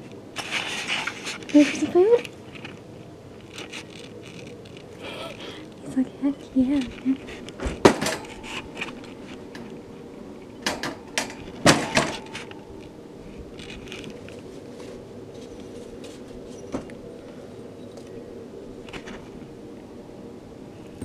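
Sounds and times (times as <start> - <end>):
knocks and rattles in wire cage: 7.6 - 9.6, 10.6 - 12.6.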